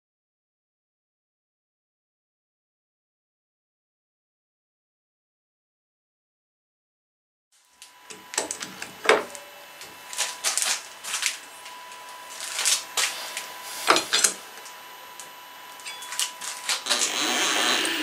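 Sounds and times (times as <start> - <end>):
faint steady hum: 7.6 - 18.0.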